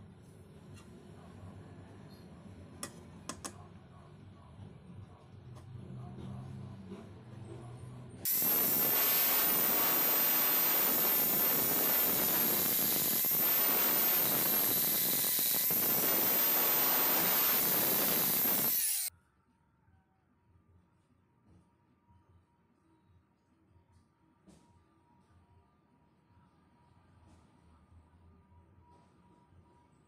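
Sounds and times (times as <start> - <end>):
abrasive wheel grinding metal: 8.3 - 19.1.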